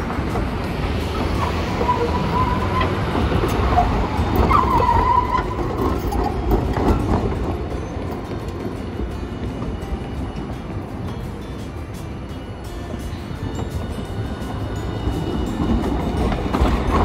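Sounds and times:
tram rumbling: 0.0s - 17.0s
wheel squeal against rails: 0.0s - 17.0s.

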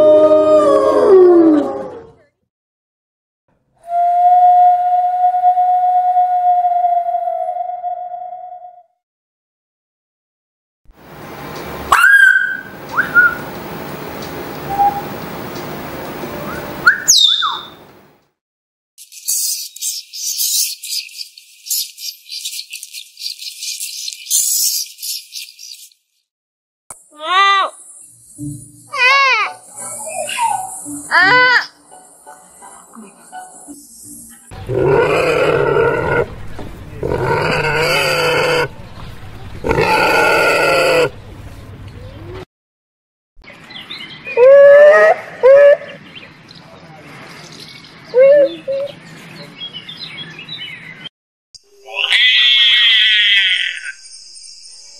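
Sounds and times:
bird whistled screeches: 11.9s - 13.4s, 16.9s - 17.8s, 19.0s - 21.1s
pig squealing: 11.9s - 13.4s, 34.6s - 36.3s, 37.0s - 38.8s, 39.6s - 41.2s, 51.9s - 54.0s
rapid high-pitched bird chatter: 16.9s - 17.8s, 19.0s - 26.0s.

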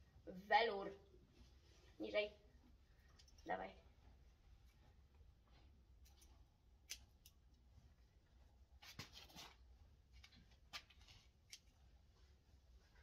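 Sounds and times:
scissors snipping hair: 6.0s - 7.4s.

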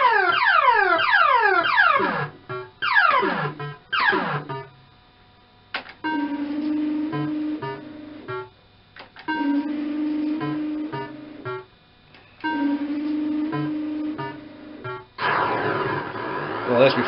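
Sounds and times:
low electronic tone: 2.0s - 4.8s, 6.0s - 8.6s, 9.3s - 16.3s.

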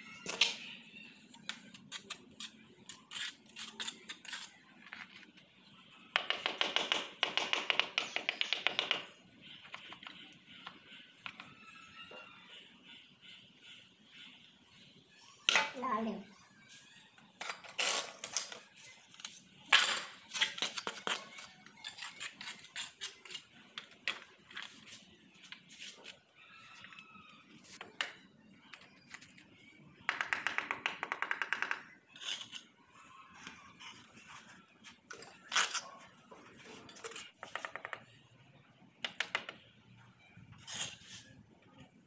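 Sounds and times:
tiles clicking and knocking: 6.1s - 12.3s, 27.6s - 32.7s, 34.8s - 38.3s, 39.0s - 41.0s.

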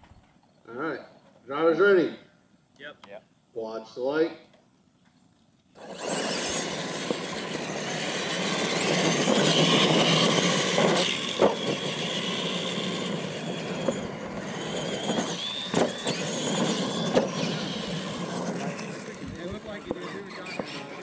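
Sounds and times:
toy truck motors whining: 5.8s - 21.0s
tyres scrabbling on dirt: 5.8s - 21.0s.

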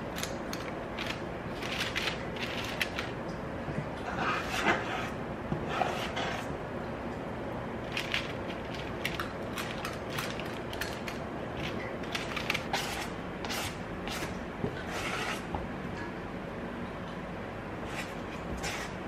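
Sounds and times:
scoop scraping metal bowl: 12.2s - 15.5s, 17.9s - 19.0s.

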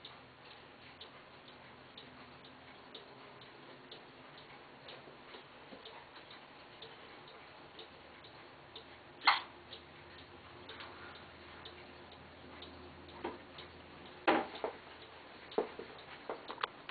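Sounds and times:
faint steady hum: 0.0s - 16.9s.

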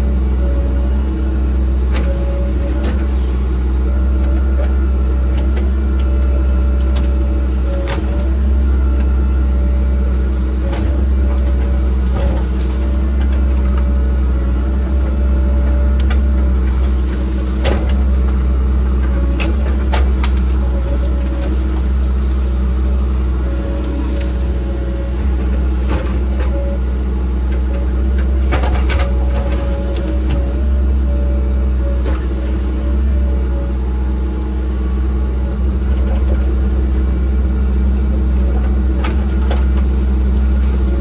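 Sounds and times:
machine engine running under load: 0.0s - 41.0s
sharp cracks and knocks: 16.0s - 18.4s.

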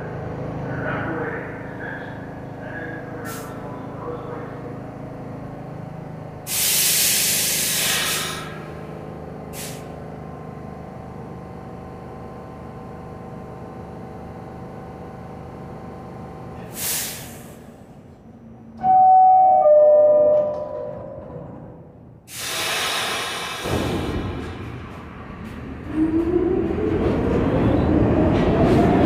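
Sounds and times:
subway car equipment hum: 0.0s - 29.0s
compressed air hiss: 6.5s - 8.6s, 9.6s - 9.9s, 16.7s - 17.6s, 22.3s - 24.1s.

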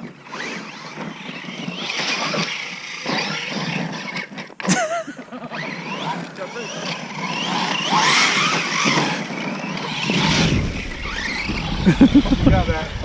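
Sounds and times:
electric motors whining: 0.0s - 13.0s
tyres churning in mud: 5.6s - 13.0s.

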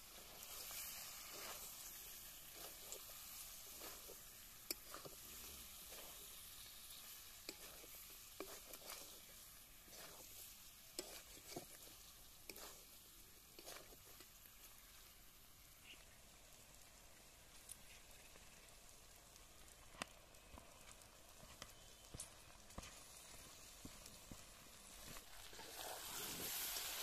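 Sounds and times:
spatula scraping a pan: 0.0s - 14.4s, 25.1s - 27.0s
meat sizzling in a pan: 0.0s - 27.0s.

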